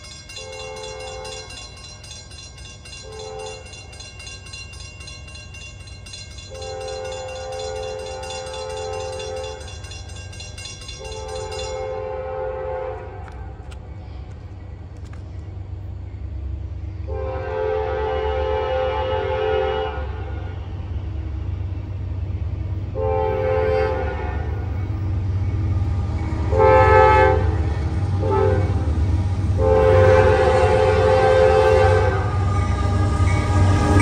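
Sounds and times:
crossing bell ringing: 0.0 - 12.6, 23.4 - 34.0
locomotive rumble: 0.0 - 34.0
train air horn blasts: 3.0 - 3.7, 6.5 - 9.6, 11.1 - 13.6, 17.1 - 20.7, 22.9 - 24.7, 26.5 - 28.9, 29.5 - 34.0.

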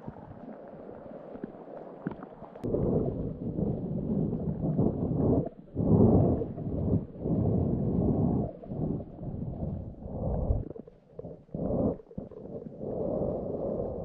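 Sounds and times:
wind buffeting microphone: 2.6 - 10.8.

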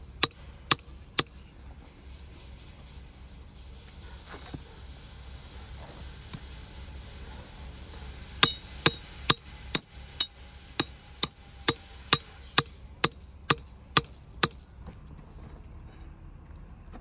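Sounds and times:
hammer striking metal pin: 8.4 - 14.6.

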